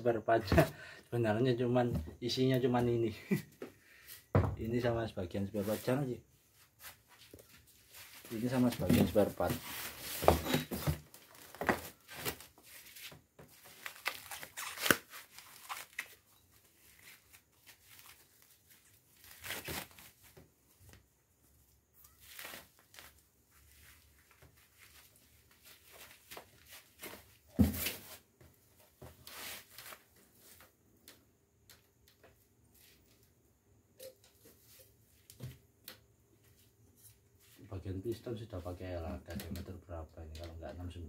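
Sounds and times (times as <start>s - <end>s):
plastic wrapping rustling and tearing: 8.5s - 20.3s, 22.0s - 27.1s.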